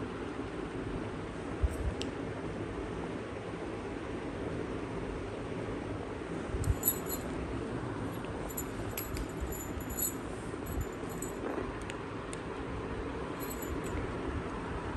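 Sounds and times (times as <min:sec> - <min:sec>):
steady background hiss: 0:00.0 - 0:14.9
light metallic jingles: 0:06.6 - 0:07.4, 0:08.2 - 0:11.5, 0:13.4 - 0:14.0.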